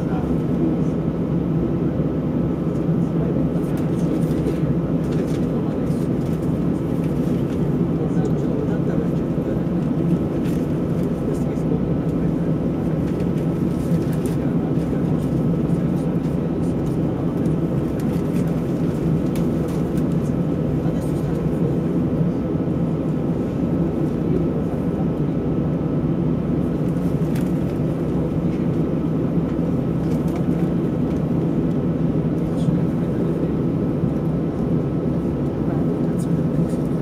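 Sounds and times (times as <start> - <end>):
jet engines idling in cabin: 0.0 - 37.0.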